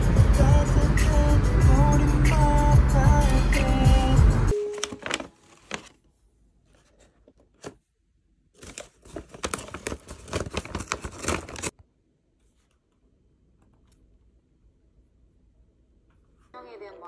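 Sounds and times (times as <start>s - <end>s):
packaging crinkling and tearing: 4.7s - 6.0s, 8.6s - 11.7s.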